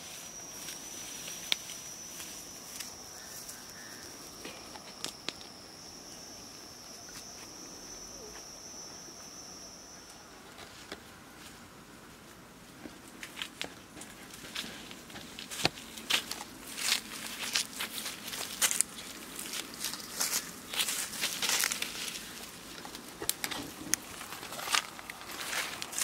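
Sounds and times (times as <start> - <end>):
footsteps in dry grass: 0.0 - 5.4, 10.6 - 26.0
insect droning: 0.0 - 26.0.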